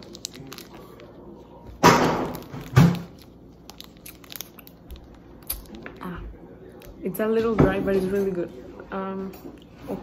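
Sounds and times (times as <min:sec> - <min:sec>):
plastic wrapper crinkling: 0:00.0 - 0:06.0
person chewing: 0:00.0 - 0:07.0.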